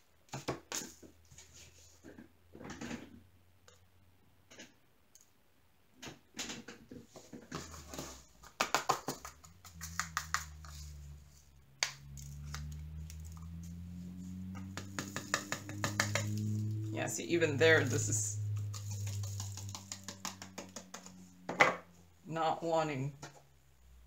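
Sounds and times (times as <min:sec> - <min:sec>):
plastic beads rattling and clicking: 0:11.8 - 0:13.8, 0:17.8 - 0:21.2
low steady hum: 0:15.7 - 0:24.0.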